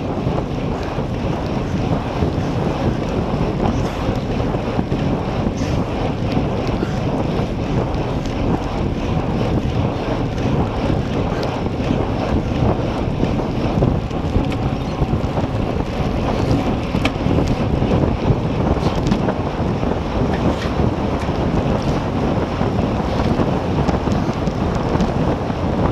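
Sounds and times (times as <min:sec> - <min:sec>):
heavy wind on microphone: 0:00.0 - 0:25.9.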